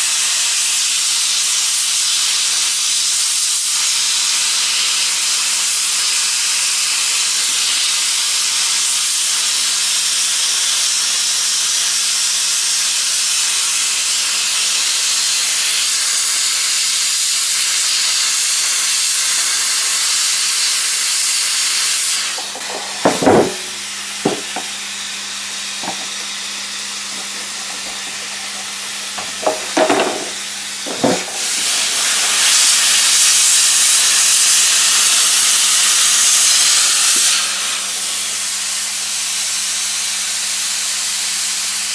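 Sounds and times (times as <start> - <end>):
hot-air welding gun hissing: 0.0 - 41.9
short knocks: 22.4 - 24.7, 29.2 - 31.3.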